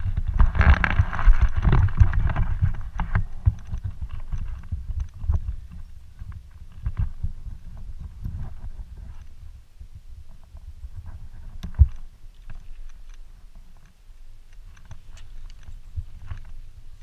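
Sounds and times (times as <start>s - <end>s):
clicks and rattles: 11.4s - 17.0s.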